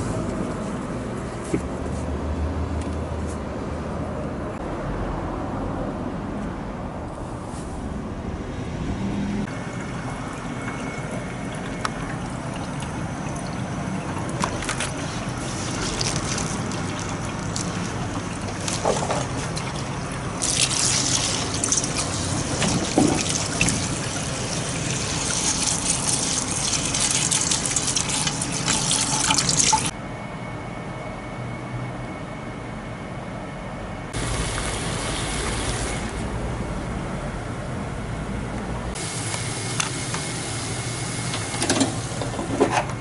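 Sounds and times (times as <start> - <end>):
water splashing: 10.6 - 29.9.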